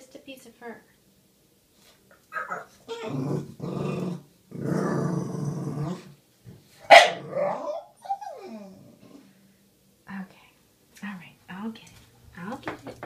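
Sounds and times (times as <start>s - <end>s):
dog whining: 2.3s - 4.0s, 6.9s - 9.3s
dog grumbling and growl-moaning: 2.3s - 6.2s, 7.1s - 9.3s
dog yipping: 6.9s - 8.5s.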